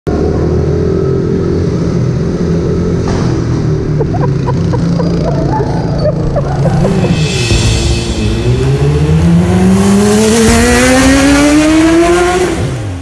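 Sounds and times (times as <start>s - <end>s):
motorbike engines revving: 0.1s - 13.0s
mini motorbike engine drone: 3.8s - 6.9s.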